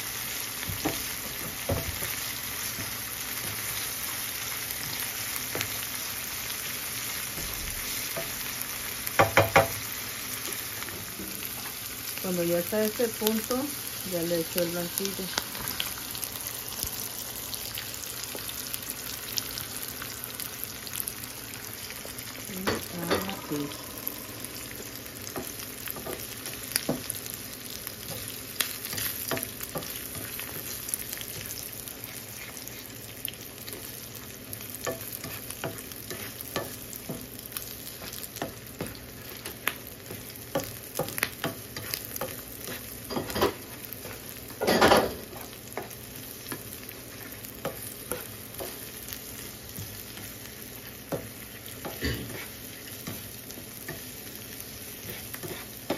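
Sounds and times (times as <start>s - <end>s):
eggs sizzling in oil: 0.0s - 55.9s
spatula scraping and tapping pan: 25.2s - 27.2s, 28.0s - 32.6s, 34.8s - 48.9s, 55.0s - 55.9s.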